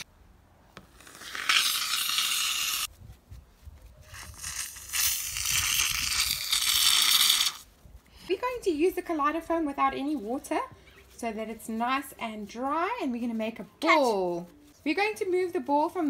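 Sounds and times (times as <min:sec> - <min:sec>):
aerosol can spraying foam: 0:00.9 - 0:02.9, 0:04.1 - 0:07.7.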